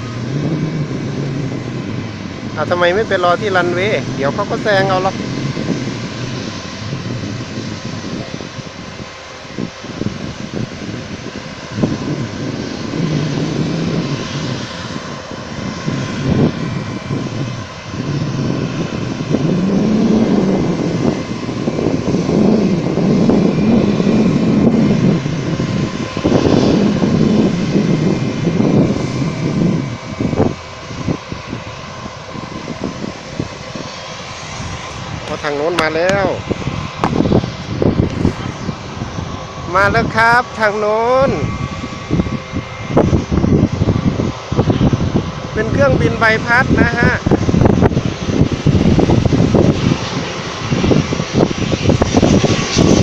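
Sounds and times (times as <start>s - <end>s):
jet airliner taxiing: 0.0s - 53.0s.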